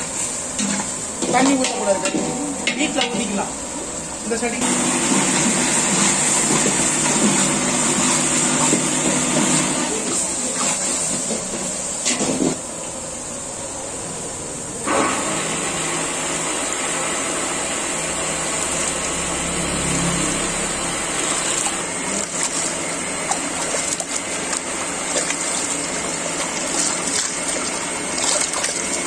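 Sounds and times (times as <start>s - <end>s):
water sloshing in metal pot: 21.0s - 29.0s.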